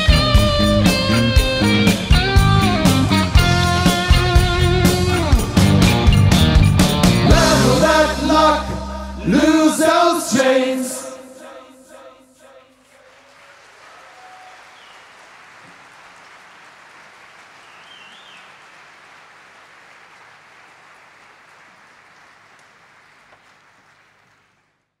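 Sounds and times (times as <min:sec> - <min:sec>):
audience applauding: 0:12.8 - 0:24.8
short whistles: 0:17.6 - 0:18.6.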